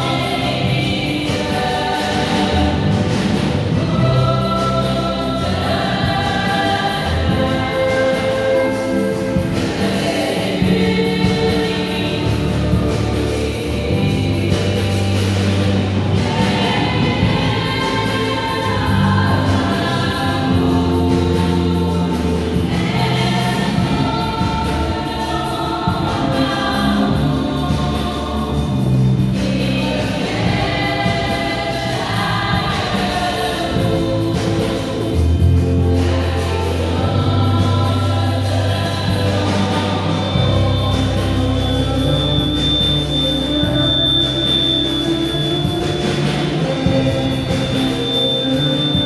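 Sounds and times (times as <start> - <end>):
female vocal group singing: 0.0 - 49.0
low bass notes: 0.0 - 49.0.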